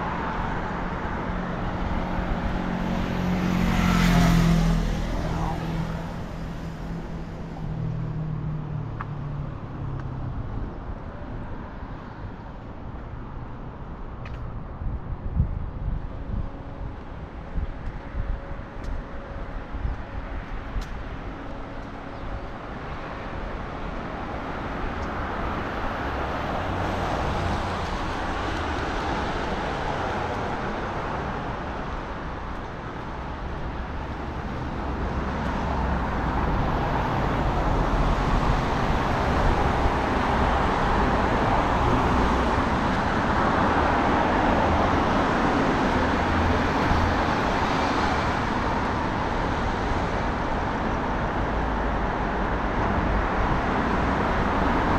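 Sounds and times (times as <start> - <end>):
cars going by: 0.0 - 54.9.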